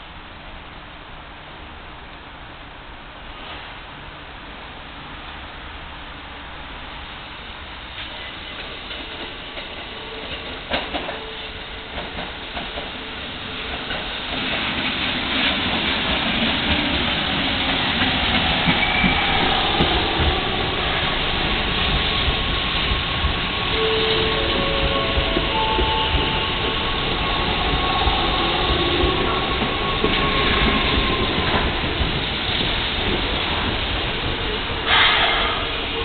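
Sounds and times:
train wheels and motors rumbling: 0.0s - 36.0s
rail clatter: 8.0s - 36.0s
steady high tones: 17.6s - 31.2s.

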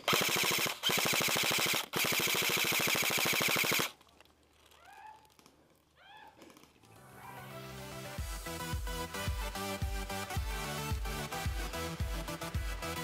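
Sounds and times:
airsoft gun full-auto burst: 0.0s - 4.0s
music: 6.9s - 13.0s.

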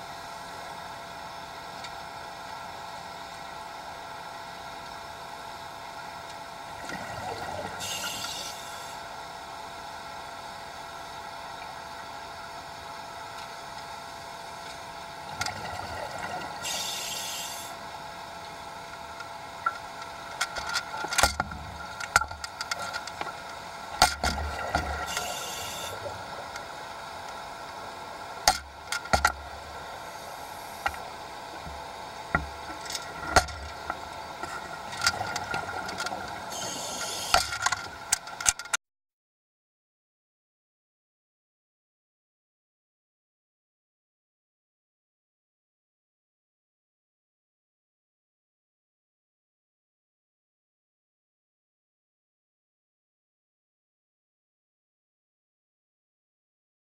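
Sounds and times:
underwater hum and hiss: 0.0s - 38.6s
diver exhaling bubbles: 6.8s - 8.8s.

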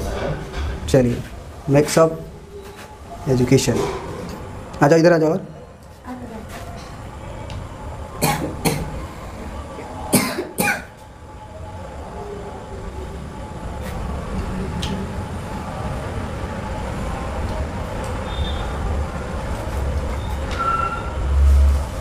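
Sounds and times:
low rumble of room noise: 0.0s - 22.0s
short coughs: 10.2s - 10.9s.

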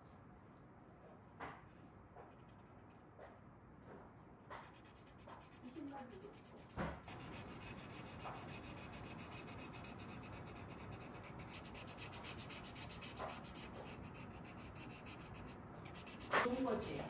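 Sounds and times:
marker scratching on paper: 4.5s - 17.0s.

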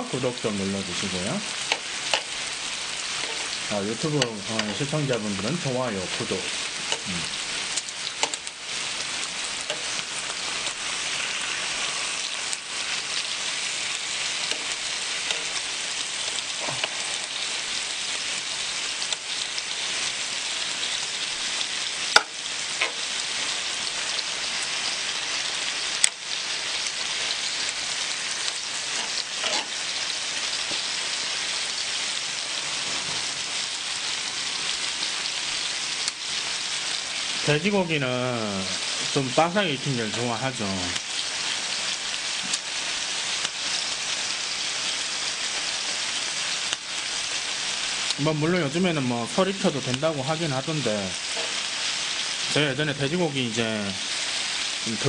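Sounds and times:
meat sizzling on a hot griddle: 0.0s - 55.0s
metal tongs clicking on griddle: 1.7s - 2.3s, 8.2s - 8.5s, 9.6s - 9.9s.

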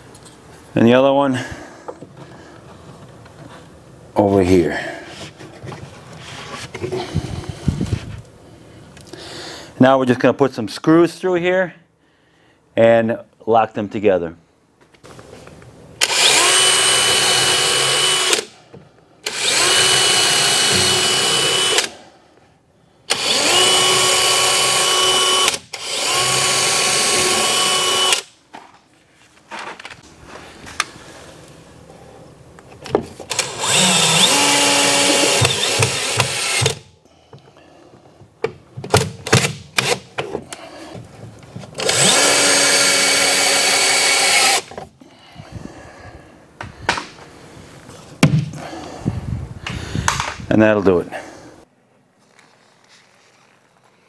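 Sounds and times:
cordless drill whining: 16.0s - 18.5s, 19.2s - 22.0s, 23.1s - 28.3s, 33.3s - 36.8s, 41.8s - 44.8s.

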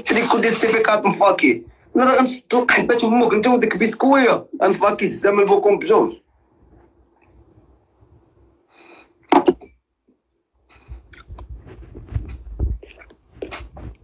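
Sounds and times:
sharp knock: 9.3s - 9.7s.

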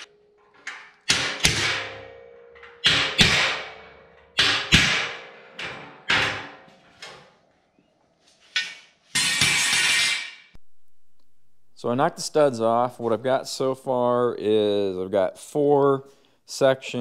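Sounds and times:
hammer striking steel: 0.7s - 6.6s, 8.6s - 11.8s.

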